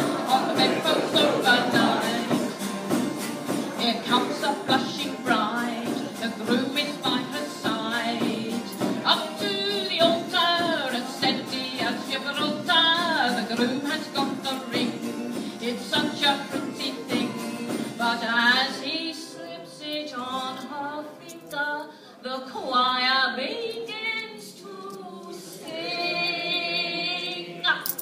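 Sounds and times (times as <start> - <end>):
backing music with percussion: 0.0 - 18.8
person singing with vibrato: 0.0 - 28.0.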